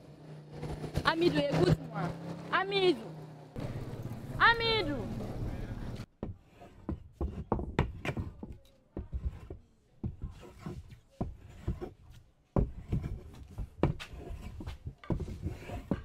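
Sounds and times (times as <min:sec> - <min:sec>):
hand tool scraping wood: 0:00.5 - 0:02.4, 0:06.2 - 0:16.0
hand tool knocking on wood: 0:12.6 - 0:16.0.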